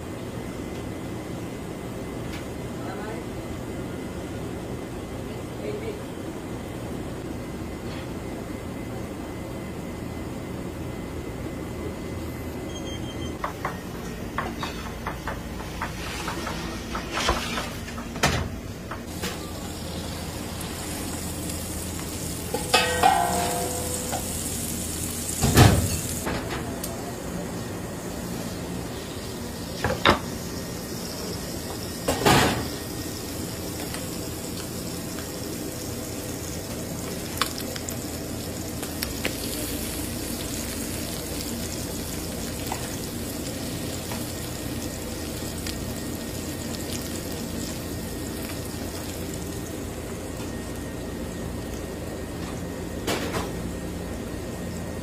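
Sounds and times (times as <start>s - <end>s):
food sizzling in a pan: 19.1s - 26.3s, 27.6s - 52.3s.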